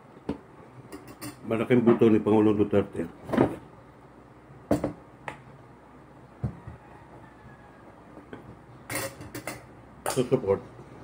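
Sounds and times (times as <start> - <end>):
dishes knocking and clicking: 0.2 - 2.1, 4.7 - 5.4, 8.2 - 10.3.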